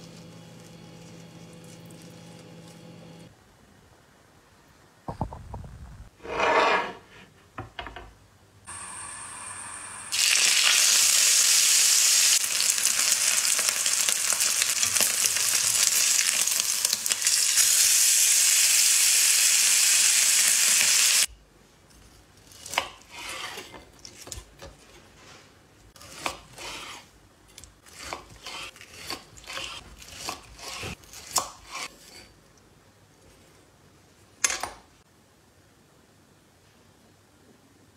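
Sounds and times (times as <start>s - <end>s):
steak sizzling in skillet: 8.7s - 21.3s.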